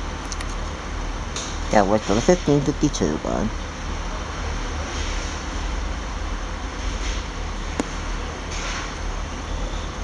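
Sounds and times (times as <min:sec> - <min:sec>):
diesel train engine rumble: 0:00.0 - 0:10.0
sharp click: 0:00.2 - 0:00.6.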